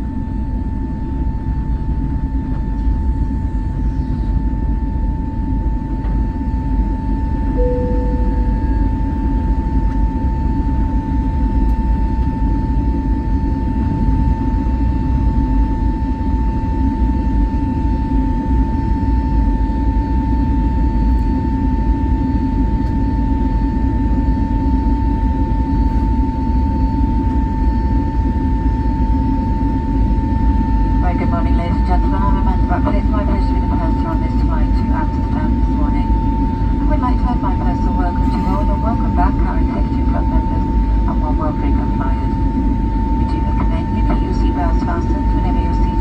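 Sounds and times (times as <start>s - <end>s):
jet engines rumbling in cabin: 0.0s - 46.0s.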